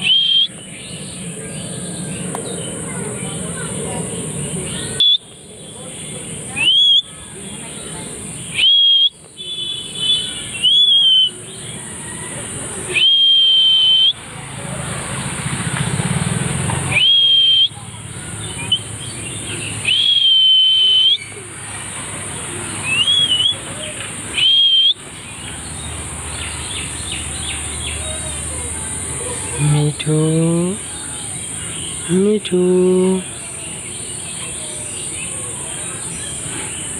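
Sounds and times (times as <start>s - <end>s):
parakeet whistling: 0.0s - 0.6s, 4.7s - 5.3s, 6.6s - 7.2s, 8.5s - 11.4s, 12.9s - 14.2s, 17.0s - 17.8s, 19.8s - 21.3s, 22.8s - 23.7s, 24.3s - 25.0s.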